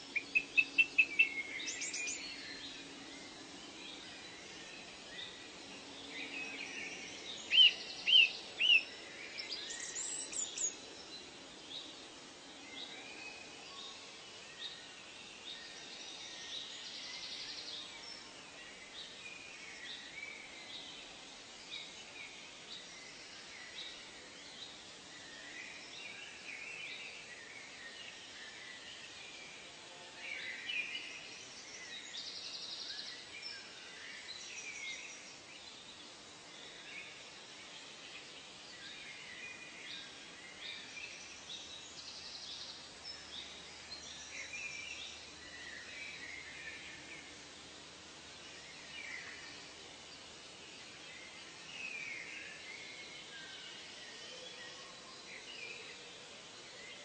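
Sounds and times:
birds calling and chirping: 0.0 - 3.0
steady background hiss: 0.0 - 57.0.

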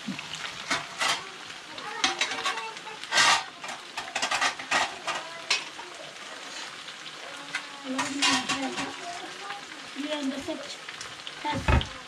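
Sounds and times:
vegetables sizzling in oil: 0.0 - 12.0
utensil scraping and clinking pan: 0.6 - 1.3, 2.0 - 5.8, 7.5 - 9.0.

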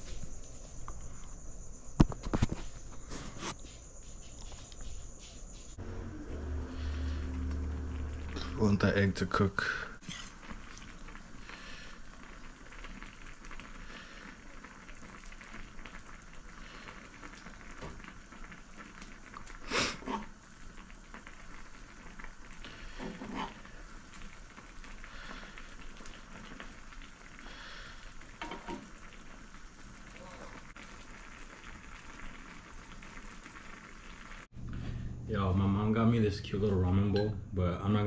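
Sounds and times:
soft bubbling of simmering pan: 5.7 - 34.9.

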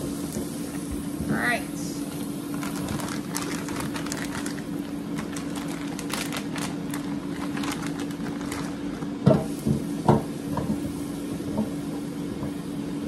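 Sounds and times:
steady low hum: 0.0 - 13.0
plastic bag crinkling: 2.4 - 9.2.

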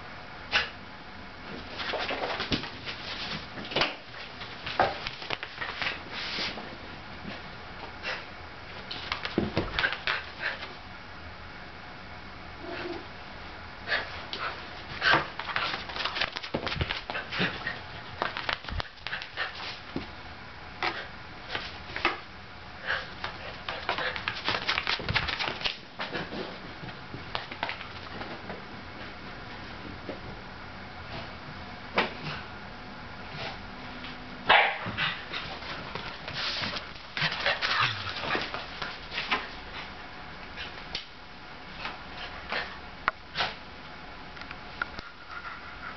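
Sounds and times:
dog paws clicking on hard floor: 1.5 - 7.4, 8.7 - 10.7, 14.3 - 20.1, 23.2 - 30.3, 34.8 - 39.9.

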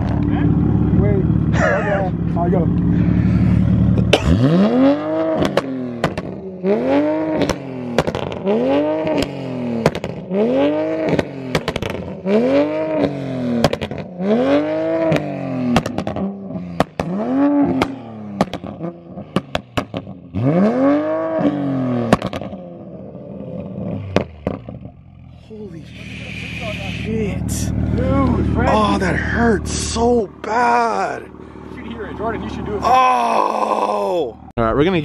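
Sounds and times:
car engine revving: 0.0 - 34.5
exhaust pops and bangs: 5.2 - 6.5, 7.2 - 10.4, 11.0 - 12.3, 12.9 - 14.4, 15.0 - 20.4, 22.0 - 22.6, 24.0 - 25.0.

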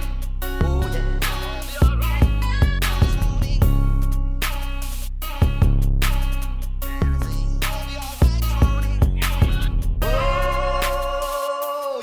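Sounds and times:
beat with deep bass and drums: 0.0 - 12.0.

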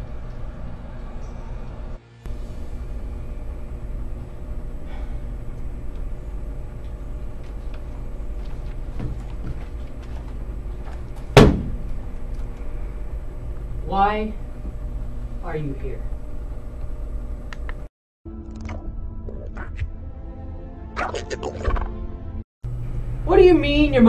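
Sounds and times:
steady low rumble: 0.0 - 17.9
loud sharp bang: 11.4 - 11.8.

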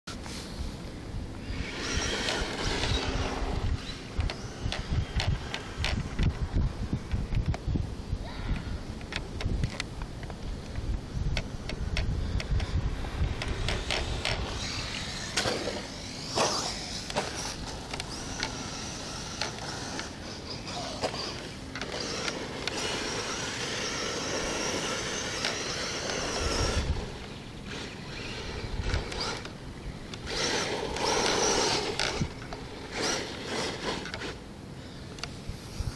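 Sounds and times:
high electric motor whine: 1.1 - 7.1, 11.1 - 35.9
tyres scrabbling in dirt: 1.4 - 6.4, 11.7 - 29.6, 30.2 - 34.4.

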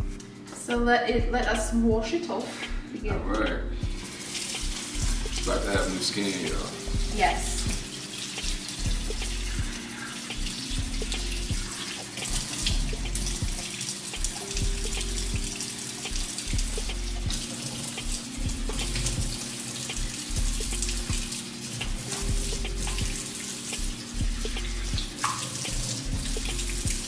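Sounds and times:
faucet running into metal sink: 4.0 - 27.0.

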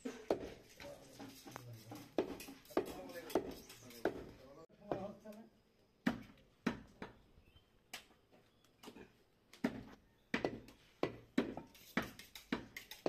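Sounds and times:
cleaver chopping meat on wood: 9.6 - 12.8.

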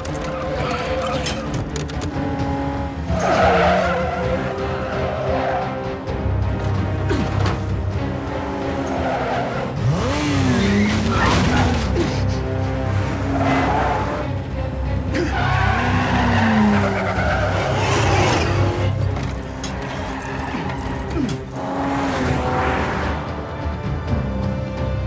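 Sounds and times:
car engine racing: 0.0 - 25.0
film score with low drone: 0.0 - 25.0
tyres squealing: 3.1 - 5.8, 15.1 - 18.6.

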